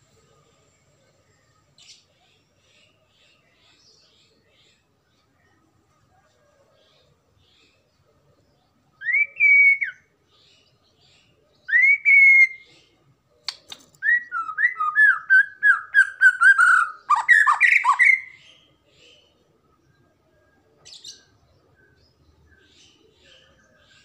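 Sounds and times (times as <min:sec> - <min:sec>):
songbird whistling song: 0:08.8 - 0:19.3.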